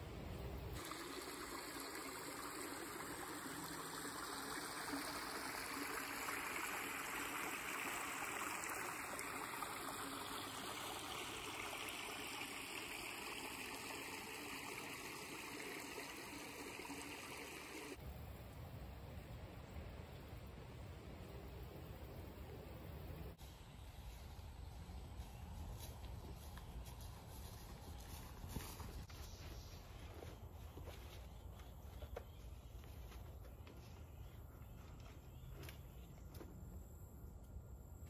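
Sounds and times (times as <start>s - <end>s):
steady running water: 0.8s - 18.0s.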